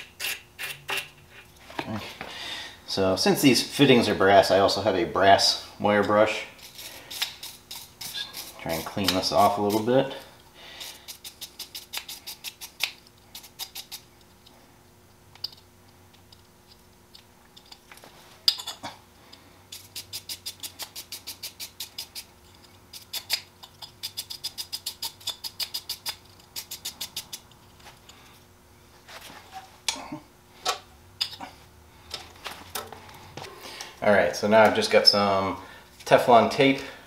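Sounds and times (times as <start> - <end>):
wire brush scrubbing metal: 6.6 - 10.2, 19.7 - 22.3.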